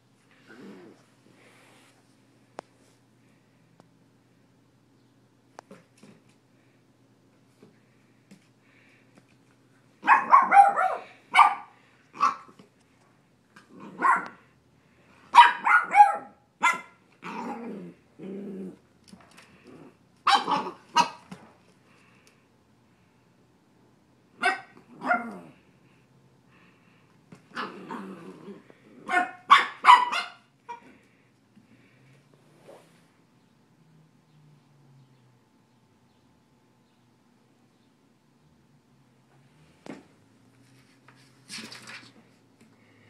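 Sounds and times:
puppy growling: 0.3s - 1.1s, 13.6s - 14.5s, 17.2s - 20.9s, 24.8s - 25.7s, 27.4s - 29.4s
puppy play barks: 10.0s - 12.6s, 13.6s - 14.4s, 15.3s - 17.7s, 20.2s - 21.3s, 24.4s - 25.6s, 29.0s - 30.9s.

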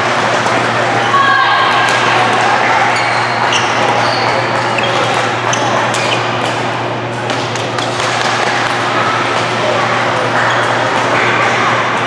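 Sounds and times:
steady hum: 0.0s - 12.0s
shoes squeaking on court floor: 2.0s - 6.8s.

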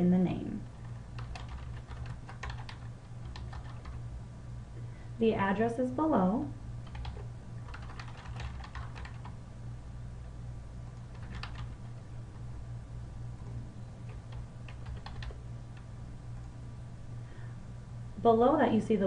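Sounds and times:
steady low hum: 0.0s - 19.0s
typing on computer keyboard: 0.8s - 4.0s, 6.8s - 9.3s, 11.0s - 12.0s, 14.1s - 15.4s.

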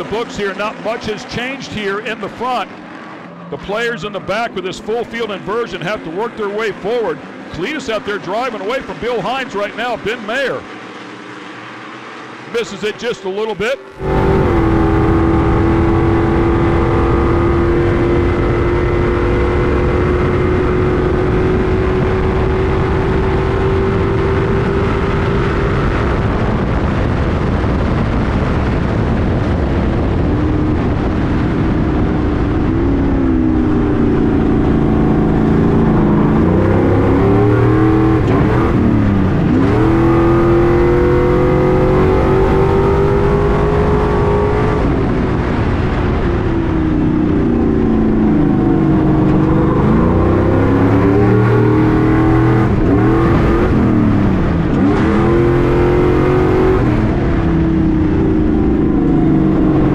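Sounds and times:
truck engine revving: 0.0s - 59.9s.

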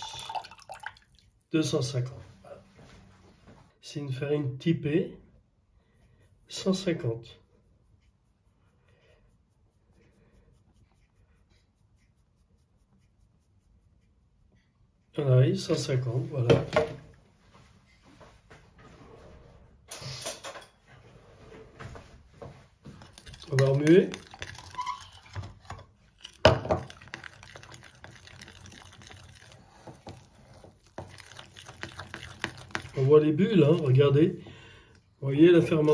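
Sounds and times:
flour pouring into glass bowl: 0.0s - 1.2s, 23.0s - 34.2s
wet stirring: 0.0s - 1.6s, 21.8s - 35.9s.

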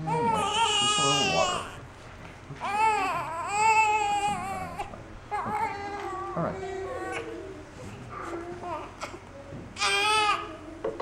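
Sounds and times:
infant crying: 0.0s - 1.8s, 2.6s - 7.5s, 9.8s - 10.6s.

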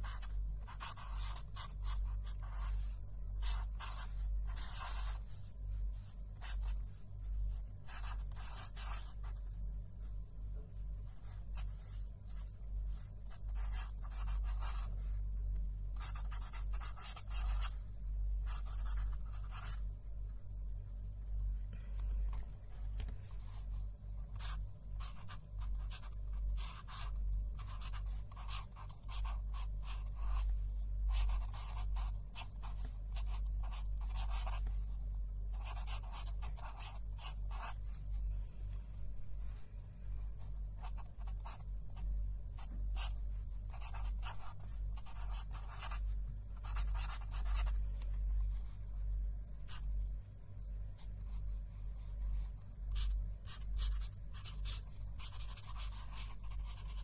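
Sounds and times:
pen scratching on paper: 0.0s - 9.6s, 11.1s - 15.2s, 16.0s - 17.8s, 18.4s - 19.8s, 23.0s - 38.0s, 40.8s - 42.0s, 42.6s - 48.8s, 51.0s - 57.0s
low hum: 0.0s - 57.0s.

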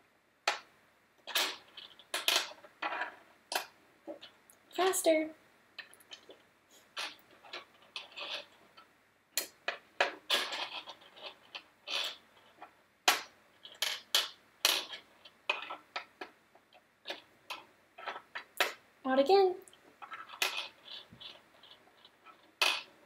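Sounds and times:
pegs clicking on plastic board: 13.1s - 16.4s.

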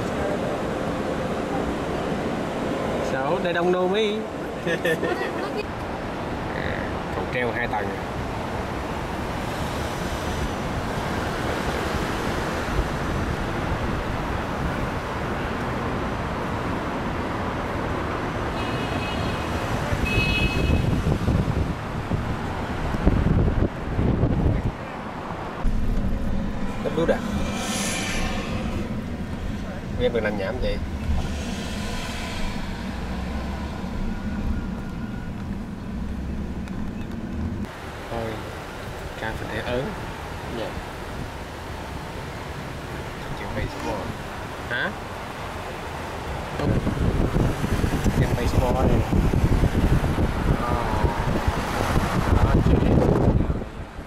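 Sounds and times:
vehicle road and wind noise: 0.0s - 54.0s
vehicle engine droning: 21.0s - 37.7s
high steady tones: 25.6s - 36.7s.

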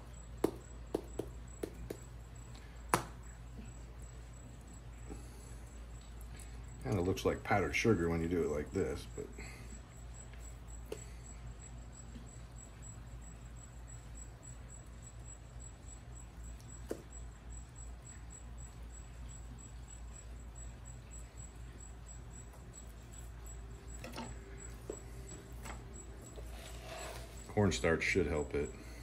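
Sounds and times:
low steady hum: 0.0s - 29.0s.

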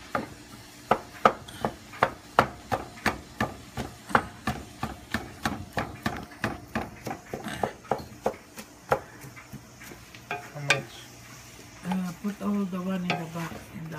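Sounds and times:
spatula scraping steel pan: 12.9s - 13.9s.

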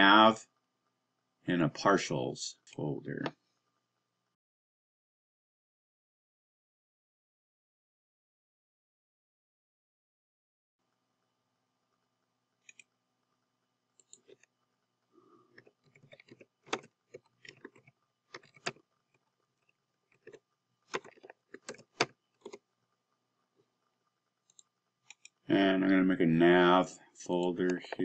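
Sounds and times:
keyboard typing: 14.0s - 14.4s, 15.5s - 18.8s, 20.1s - 22.6s, 24.4s - 25.4s.

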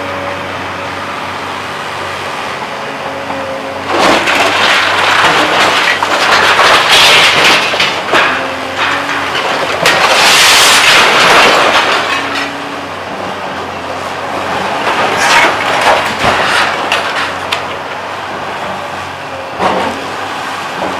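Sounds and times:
excavator diesel engine running: 0.0s - 20.9s
debris crashing and crunching: 3.4s - 18.8s.

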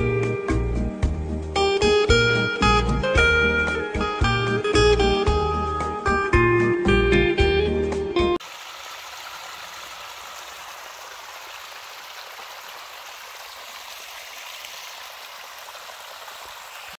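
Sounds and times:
guitar music: 0.0s - 8.4s
water trickling over stones: 8.4s - 17.0s.

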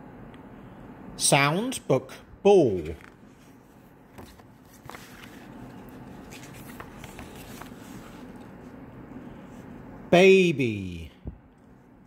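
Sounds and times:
low steady hum: 0.0s - 12.0s
paper pages rustling: 2.7s - 8.7s.

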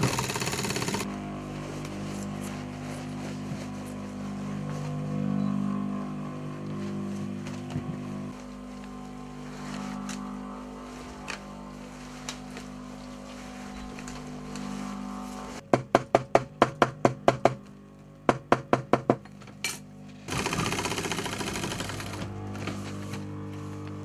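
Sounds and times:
sewing machine rattling: 0.0s - 1.1s, 20.3s - 22.3s.

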